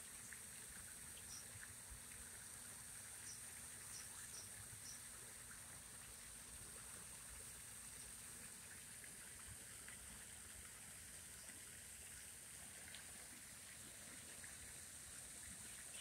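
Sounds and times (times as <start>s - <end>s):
faint outdoor hiss: 0.0s - 16.0s.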